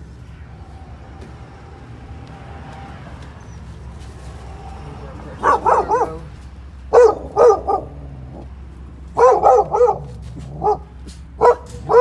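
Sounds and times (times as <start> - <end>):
dogs barking: 5.3 - 12.0.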